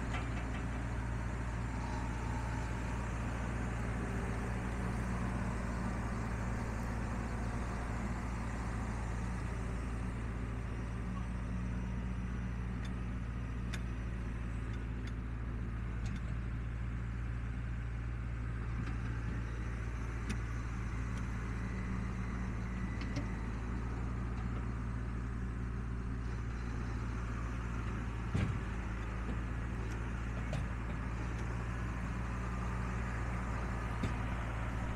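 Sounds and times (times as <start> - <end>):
tractor diesel engine running: 0.0 - 34.9.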